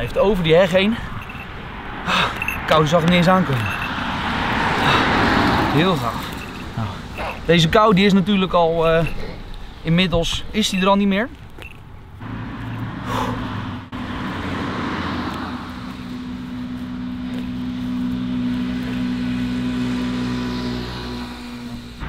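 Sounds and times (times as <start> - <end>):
engine humming steadily: 0.0 - 22.0.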